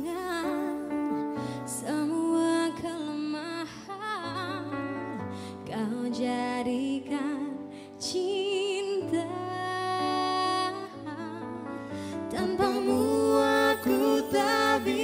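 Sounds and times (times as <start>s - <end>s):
piano accompaniment: 0.0s - 15.0s
person singing with vibrato: 12.2s - 15.0s.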